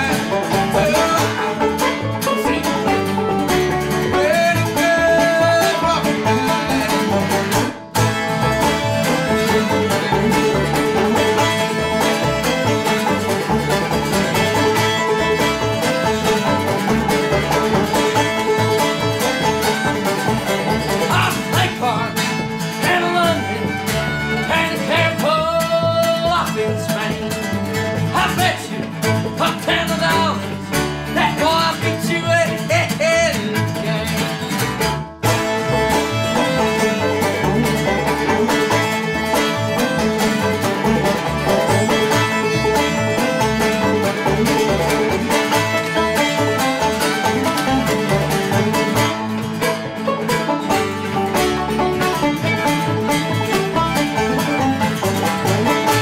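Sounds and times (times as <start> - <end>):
man singing: 0.0 - 3.1, 4.0 - 7.2, 21.0 - 23.6, 24.3 - 34.4
bluegrass string band: 0.0 - 56.0.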